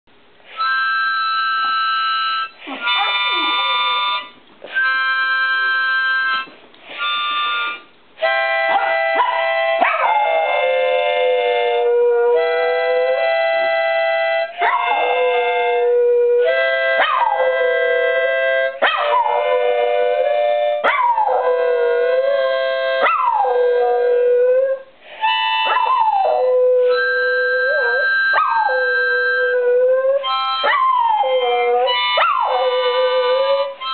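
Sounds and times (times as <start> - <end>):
instrument playing long held notes: 0.8 - 33.9
dog howling: 25.6 - 33.8.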